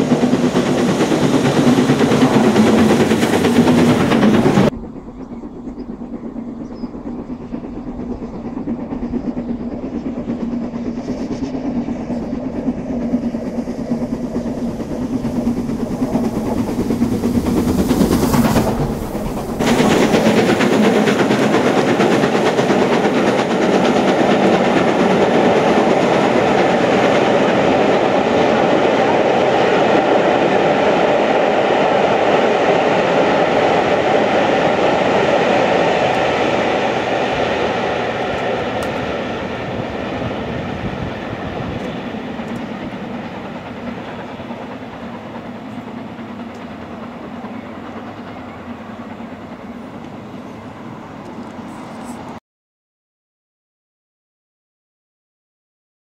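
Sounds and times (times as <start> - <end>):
steam locomotive under steam: 0.0 - 52.4
train coaches rumbling past: 0.0 - 52.4.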